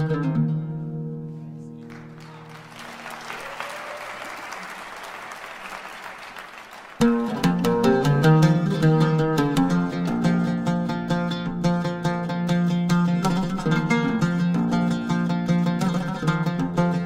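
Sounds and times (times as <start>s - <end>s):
oud plucking: 0.0s - 2.4s, 7.0s - 17.0s
audience applauding: 1.8s - 7.3s.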